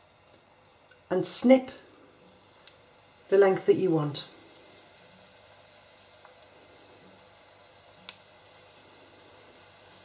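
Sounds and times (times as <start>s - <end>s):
dough sizzling in fryer oil: 0.0s - 10.0s.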